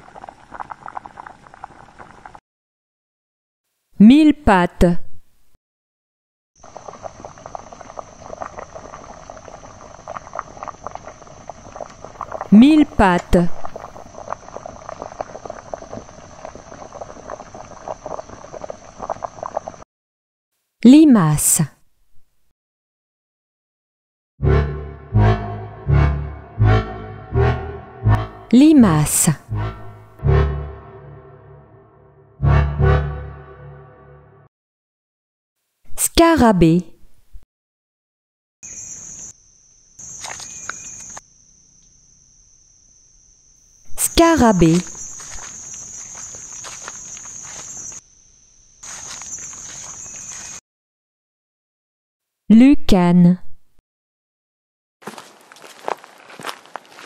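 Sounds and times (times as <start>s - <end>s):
high-pitched insect trill: 38.6s - 50.6s
rustling crackles in dry leaves: 45.0s - 48.0s, 48.8s - 50.6s, 55.0s - 57.0s.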